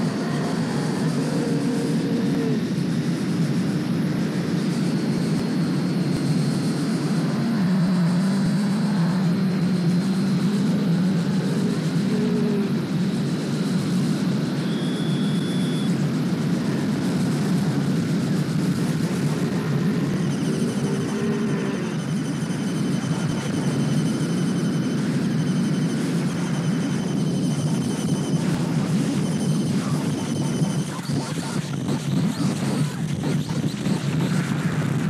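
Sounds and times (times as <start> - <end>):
faint high whine: 0.0 - 35.0
low rumbling drone: 0.0 - 35.0
distorted noise music: 27.6 - 35.0.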